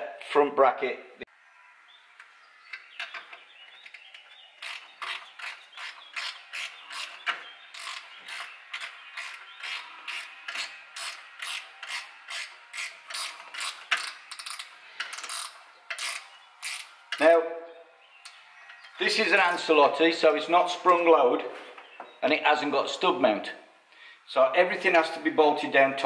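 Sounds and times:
socket ratchet clicking: 4.6 - 17.2.

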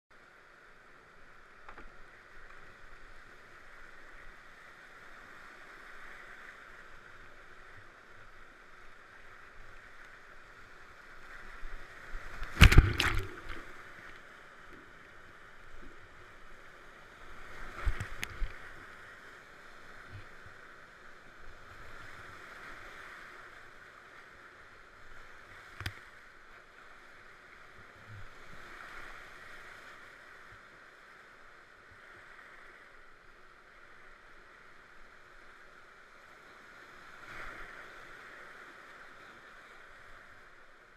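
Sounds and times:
whitewater rushing: 12.4 - 14.1
splashing thump: 12.5 - 13.7.

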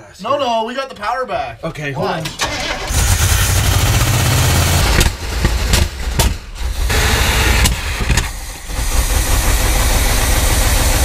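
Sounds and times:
sharp cracks: 2.4 - 6.7
truck engine running rough: 2.7 - 11.0.

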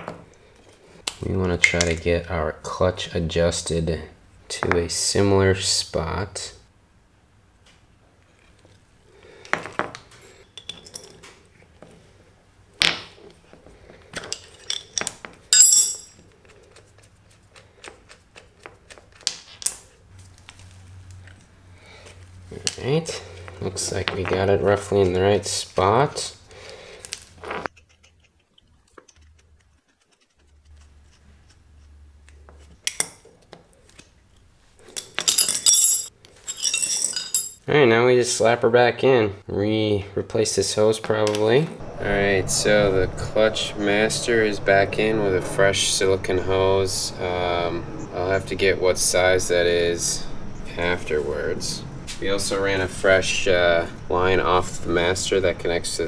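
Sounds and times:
wrenches clinking on concrete: 10.4 - 11.2, 14.2 - 16.2, 34.9 - 37.6
ringing metal clatter: 14.3 - 16.2.

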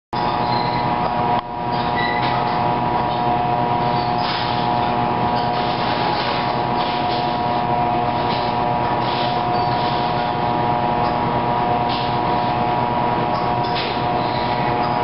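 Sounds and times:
machinery hum with whine: 0.2 - 15.0.

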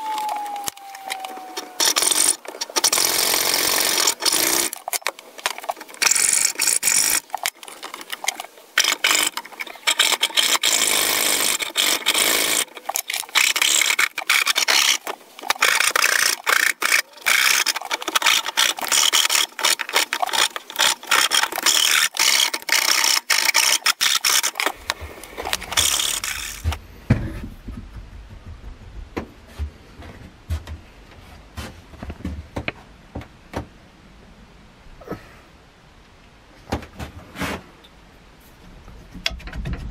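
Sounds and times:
hacksaw cutting wood: 1.8 - 4.9, 6.0 - 7.6, 8.2 - 26.8
rasp shaping wood: 6.0 - 7.5, 8.8 - 26.8.

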